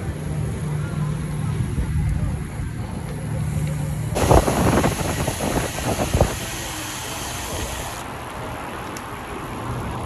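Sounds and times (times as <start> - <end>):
road noise: 0.0 - 10.0
rushing wind: 3.9 - 8.8.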